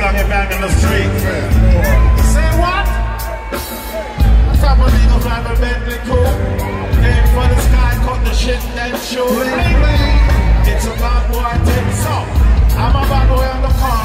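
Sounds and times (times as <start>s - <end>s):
heavy bass line: 0.0s - 14.0s
reggae band playing: 0.0s - 14.0s
man singing into microphone: 4.3s - 14.0s.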